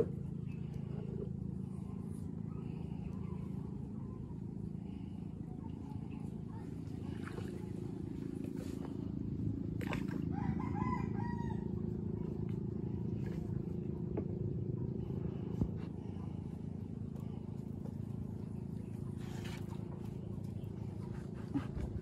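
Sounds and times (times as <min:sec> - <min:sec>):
small boat motor running: 0:00.0 - 0:22.0
rooster crowing: 0:10.3 - 0:11.7.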